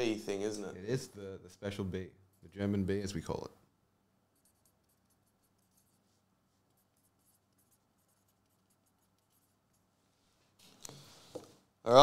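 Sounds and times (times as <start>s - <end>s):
faint scratching and ticking: 4.3s - 11.5s.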